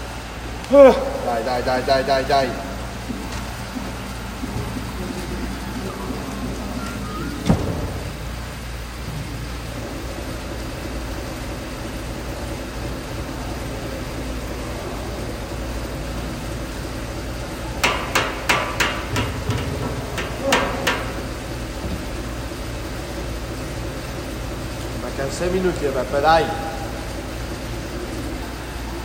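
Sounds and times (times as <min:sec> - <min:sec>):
background hum: 0:00.0 - 0:29.0
dumbbells knocking on floor: 0:17.8 - 0:21.2.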